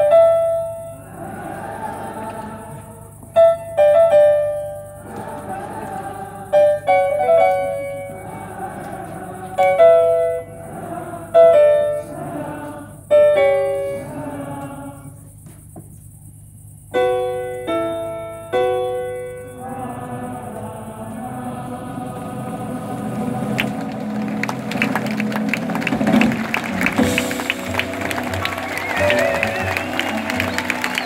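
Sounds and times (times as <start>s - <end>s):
grand piano chords: 0.0s - 15.4s, 16.8s - 31.0s
crowd singing: 0.0s - 15.5s, 19.3s - 31.0s.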